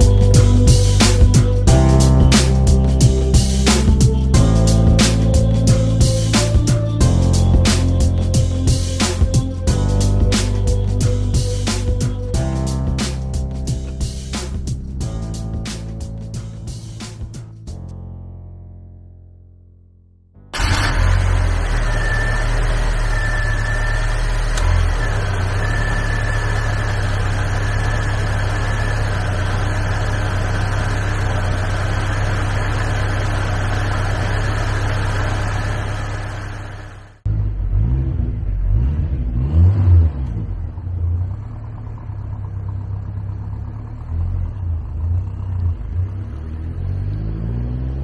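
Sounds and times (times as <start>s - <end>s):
car engine running: 0.0s - 17.8s, 20.6s - 48.0s
car driving away: 20.5s - 48.0s
high whine: 20.6s - 37.2s.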